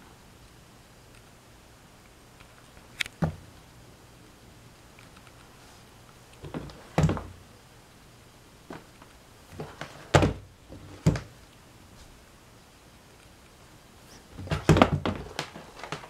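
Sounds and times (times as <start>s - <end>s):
plastic fan knocking on wooden floor: 14.4s - 16.0s.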